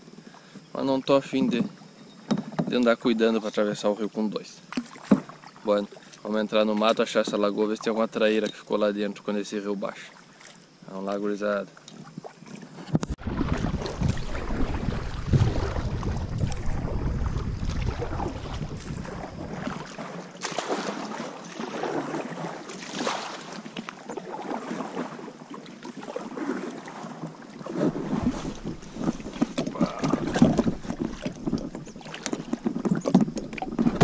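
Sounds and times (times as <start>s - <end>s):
bumps and knocks against kayak: 1.3s - 3.6s, 4.7s - 5.6s, 6.7s - 7.7s, 11.9s - 21.7s, 26.9s - 34.0s
paddle splashes in water: 4.7s - 7.8s, 11.8s - 34.0s
wind on microphone: 12.9s - 19.9s.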